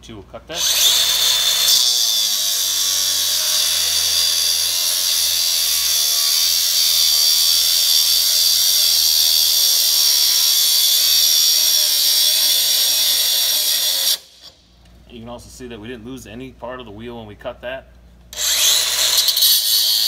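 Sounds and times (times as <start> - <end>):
angle grinder cutting metal: 0.6 - 14.5, 18.4 - 20.0.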